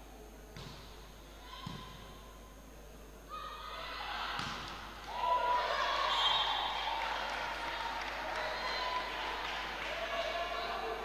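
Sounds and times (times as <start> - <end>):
volleyball struck with dull thuds: 0.6 - 1.0, 1.6 - 2.1, 4.4 - 4.8
players and spectators shouting: 5.1 - 11.0.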